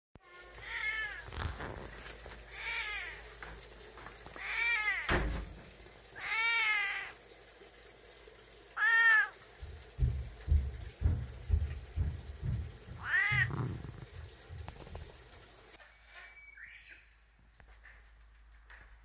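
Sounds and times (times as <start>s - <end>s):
cat meowing: 0.2s - 1.6s, 2.5s - 3.3s, 4.4s - 5.1s, 6.2s - 7.2s, 8.8s - 9.4s, 13.0s - 14.0s
low thump: 5.1s - 5.7s, 10.0s - 13.8s.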